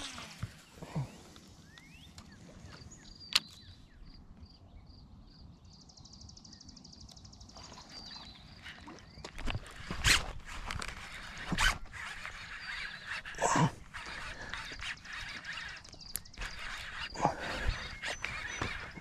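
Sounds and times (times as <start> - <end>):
sharp click: 3.3 - 3.6
fishing reel ticking: 9.4 - 19.0.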